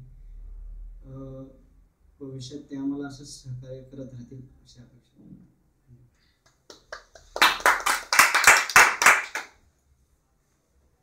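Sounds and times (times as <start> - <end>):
small group clapping: 6.4 - 9.6.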